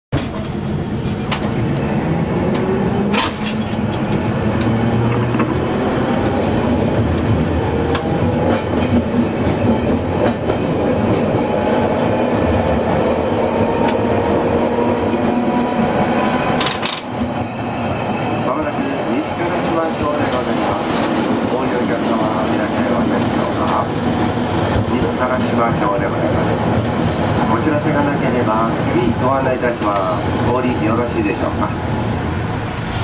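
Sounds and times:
wheels rumbling on rail: 0.1s - 33.0s
tram motor hum and whine: 0.2s - 33.0s
sharp track clicks: 7.1s - 11.2s, 13.8s - 14.1s, 20.0s - 23.9s.

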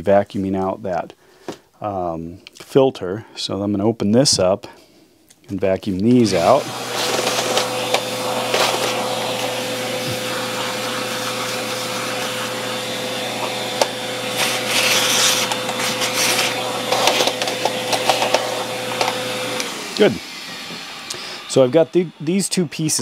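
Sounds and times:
vacuum cleaner running: 6.1s - 23.0s.

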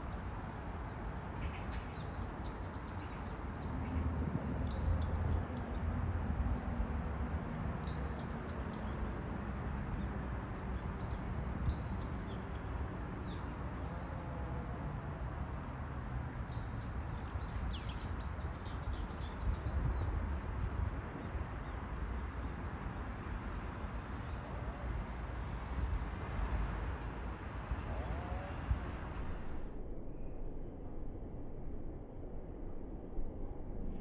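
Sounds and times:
low outdoor rumble: 12.7s - 34.0s.

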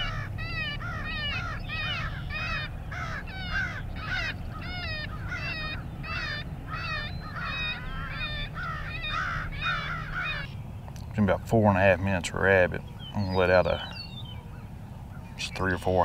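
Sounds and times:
crows cawing: 0.0s - 10.6s
low steady rumble: 0.0s - 16.0s.

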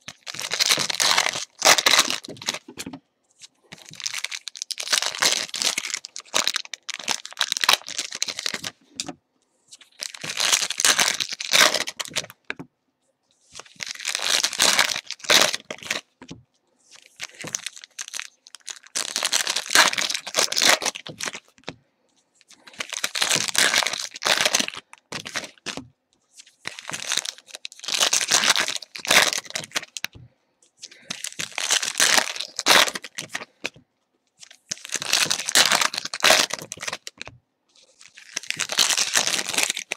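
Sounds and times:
foil wrappers tearing and crinkling: 0.1s - 2.8s, 3.8s - 8.8s, 9.9s - 12.3s, 13.5s - 16.0s, 17.0s - 21.5s, 22.6s - 25.7s, 26.7s - 30.0s, 30.9s - 33.6s, 34.4s - 37.2s, 37.8s - 39.9s.

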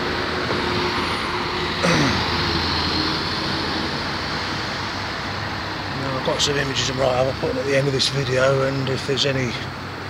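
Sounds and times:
bus driving past: 0.0s - 7.4s
road traffic: 0.0s - 10.0s.

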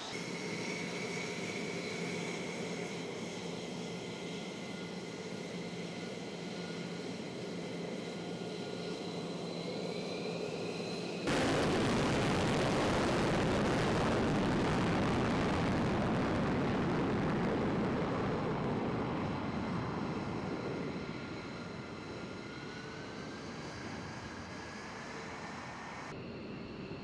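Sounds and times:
jet roar on takeoff: 0.0s - 26.2s.

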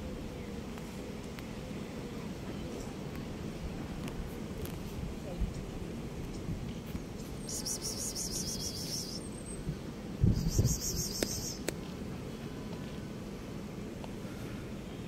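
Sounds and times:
outdoor background noise: 0.0s - 15.0s
insect pulsing trill: 7.4s - 9.4s, 10.3s - 11.7s.

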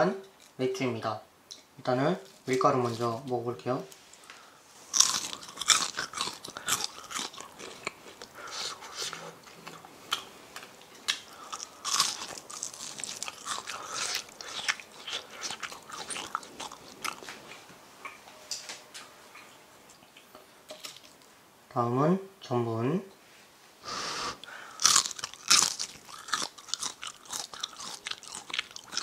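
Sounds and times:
crunchy chewing of fried food: 4.1s - 18.2s, 24.4s - 29.0s.

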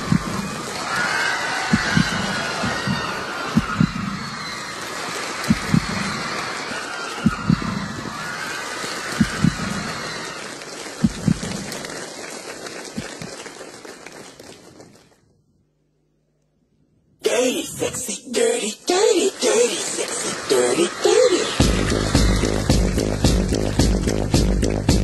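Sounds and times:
audience screaming and cheering: 0.0s - 13.5s, 19.4s - 25.0s.

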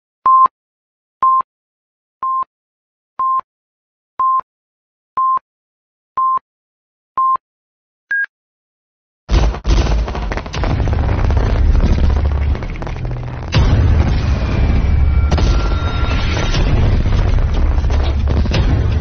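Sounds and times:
electronic countdown beeps: 3.2s - 3.4s, 5.2s - 5.4s, 6.2s - 6.4s, 7.2s - 7.4s, 8.1s - 8.3s.

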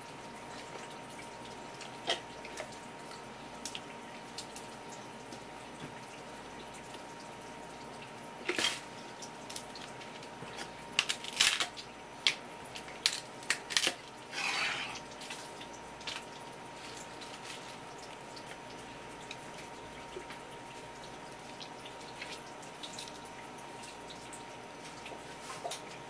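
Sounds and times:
wet slide or scrape: 14.3s - 15.0s.

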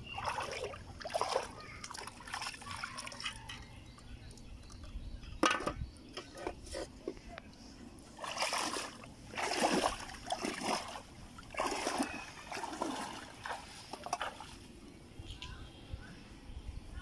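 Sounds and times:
footsteps splashing in muddy water: 0.0s - 3.4s, 8.2s - 14.8s.

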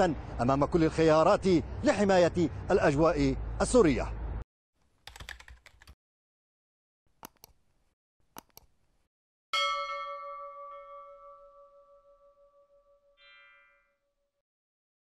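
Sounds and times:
single clicks: 8.4s - 8.7s
bell chime ringing: 9.6s - 14.3s.

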